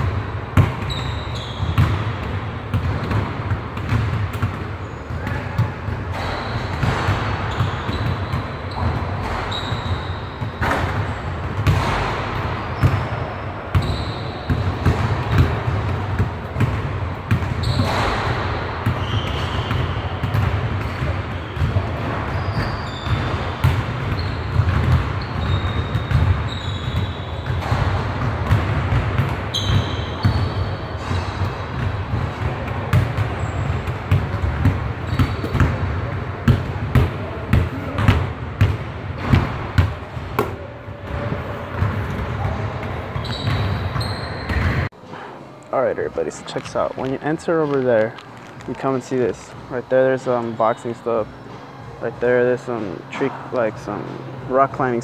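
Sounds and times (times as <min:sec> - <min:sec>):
basketballs bouncing on hardwood floor: 0:00.0 - 0:44.9
shoes squeaking: 0:00.8 - 0:02.0, 0:04.8 - 0:12.0, 0:12.6 - 0:16.2, 0:17.4 - 0:28.6, 0:29.4 - 0:31.4, 0:35.0 - 0:35.8, 0:39.2 - 0:55.0.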